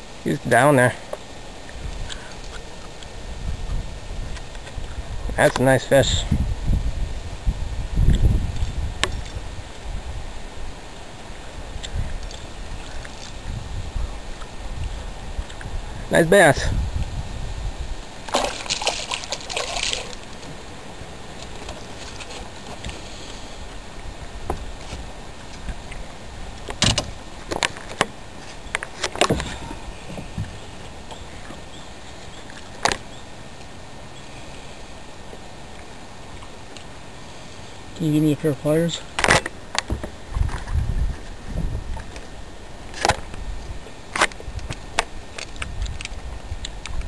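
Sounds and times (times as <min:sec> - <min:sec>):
water splashing: 0:08.0 - 0:33.6.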